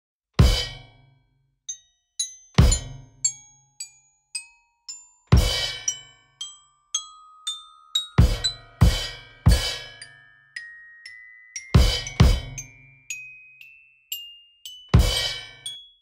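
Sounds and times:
drum and cymbal hits: 0.4 - 1.0, 2.6 - 3.1, 5.4 - 6.0, 8.2 - 10.1, 11.8 - 12.8, 15.0 - 15.6
glockenspiel-like mallet notes: 1.7 - 16.0.

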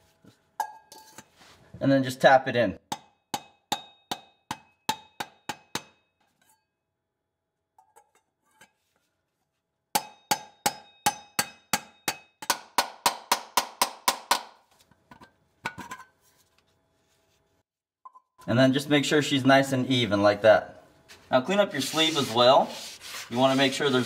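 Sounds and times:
hammer tapping metal tool: 2.9 - 6.7, 10.0 - 15.3.

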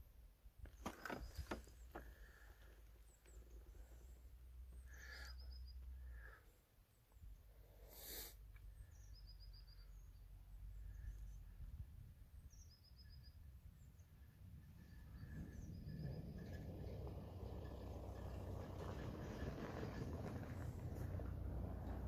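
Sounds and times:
low rumble of wind: 0.0 - 22.0
small songbird singing: 4.8 - 6.4, 7.2 - 18.3.

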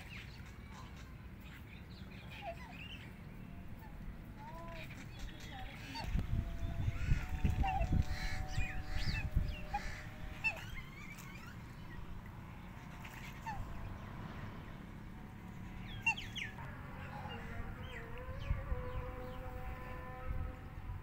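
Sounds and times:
fowl chirping calls: 4.9 - 12.0, 12.7 - 13.9, 15.8 - 16.7
fowl honking calls: 5.5 - 11.6.

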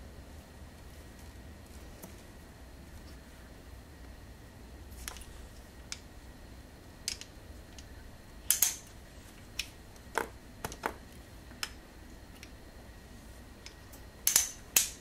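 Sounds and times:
tripod legs clicking and knocking: 9.6 - 11.0.

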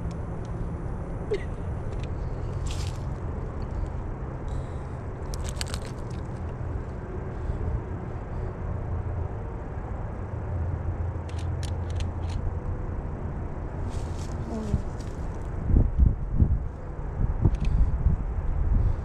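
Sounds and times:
low outdoor rumble: 0.0 - 19.0
crisp crackles: 5.3 - 6.4.

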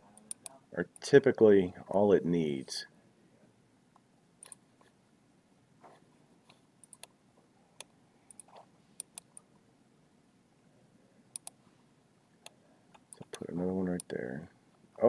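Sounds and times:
computer mouse clicks: 0.2 - 0.6, 4.4 - 4.6, 6.8 - 7.2, 7.8 - 9.5, 11.3 - 11.6.

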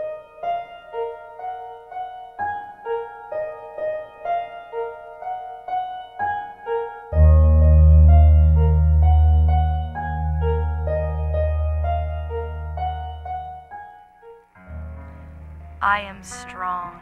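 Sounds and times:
plucked keyboard melody: 0.0 - 17.0
low bass chord: 7.2 - 13.3.

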